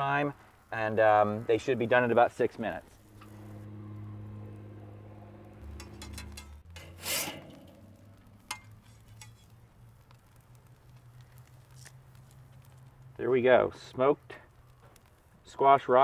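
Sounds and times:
low steady hum: 2.4s - 10.8s
metal spatula scraping grill grate: 2.9s - 10.5s.

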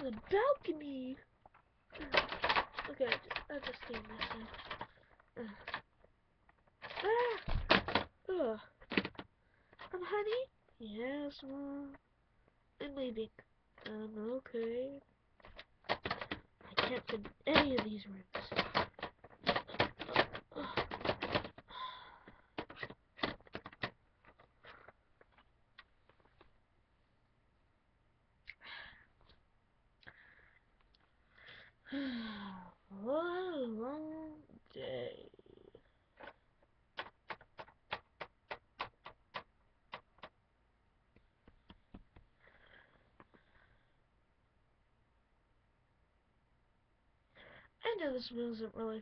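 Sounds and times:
hard plastic toys clicking: 2.0s - 5.9s, 6.6s - 8.1s, 8.8s - 9.9s, 15.4s - 21.7s, 22.5s - 24.9s, 37.0s - 40.4s.

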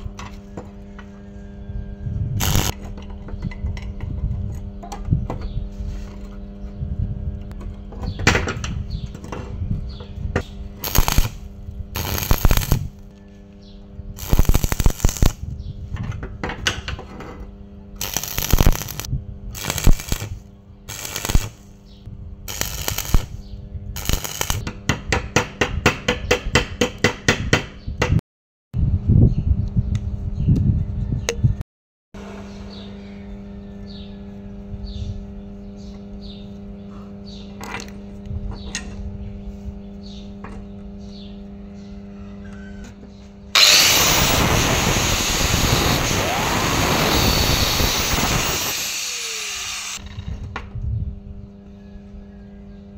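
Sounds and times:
steady low hum: 0.0s - 7.9s, 8.7s - 16.0s, 17.4s - 24.6s
welding arc crackling and sizzling: 2.4s - 2.8s, 10.8s - 13.0s, 14.2s - 15.4s, 18.0s - 21.7s, 22.5s - 23.4s, 24.0s - 24.6s, 43.6s - 50.0s.

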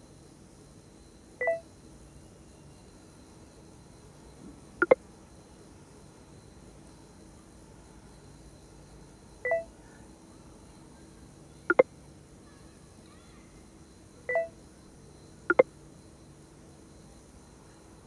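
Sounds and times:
short electronic beep: 1.4s - 1.6s, 9.5s - 9.7s, 14.3s - 14.5s.

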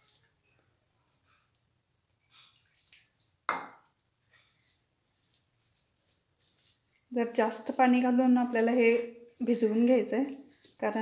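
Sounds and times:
hand mixing dough in a bowl: 0.0s - 1.5s, 2.3s - 11.0s
water splashing into a bowl: 2.3s - 4.0s.

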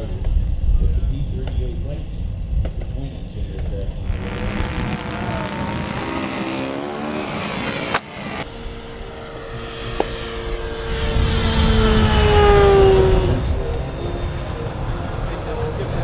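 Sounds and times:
model airplane engine droning: 4.0s - 16.0s.

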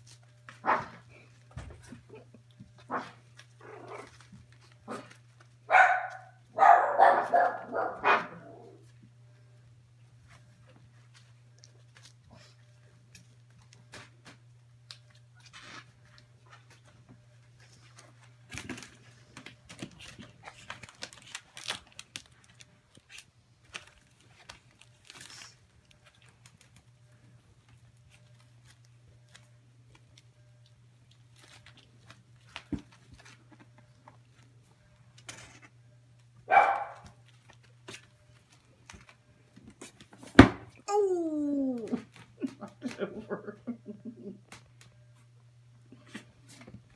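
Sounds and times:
puppies scrabbling on pads: 0.0s - 6.3s, 15.4s - 23.1s
puppy yelp: 5.7s - 8.4s, 36.5s - 37.0s.

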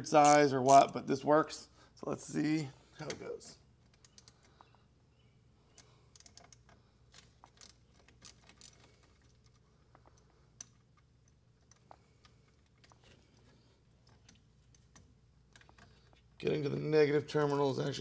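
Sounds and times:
wrench clicking on metal bolt: 0.1s - 1.0s.

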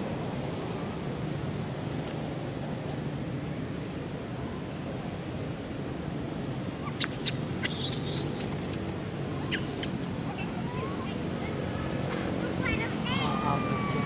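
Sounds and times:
rushing background noise: 0.0s - 14.0s
macaque squealing: 6.8s - 8.8s, 9.5s - 10.0s.

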